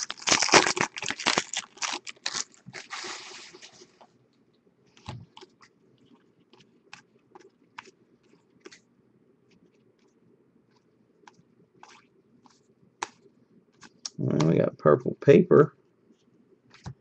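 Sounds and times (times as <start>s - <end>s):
foil wrapper crinkling: 0.0s - 3.8s.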